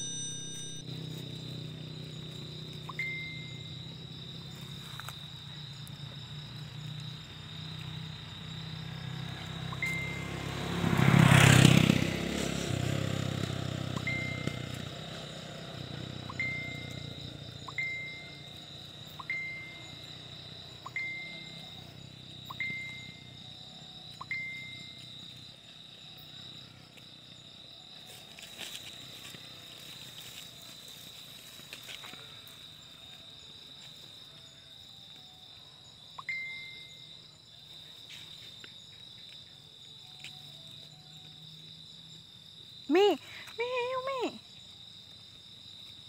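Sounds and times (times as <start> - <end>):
short ringing pings: 0.0 - 0.9, 2.9 - 3.8, 9.7 - 10.5, 13.9 - 14.8, 16.3 - 18.6, 19.2 - 20.0, 20.8 - 21.9, 36.2 - 37.1
crickets trilling: 0.0 - 46.0.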